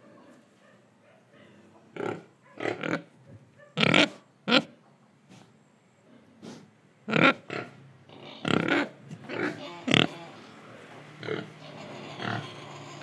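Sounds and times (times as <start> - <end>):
young pigs grunting: 6.1 - 13.0.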